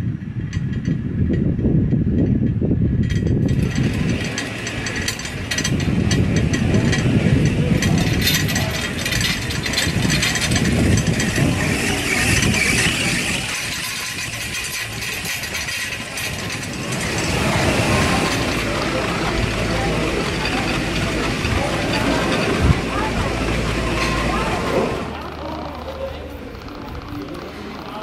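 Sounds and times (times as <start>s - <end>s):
machinery low rumble: 0.0s - 28.0s
metallic clicks and clatter: 0.4s - 28.0s.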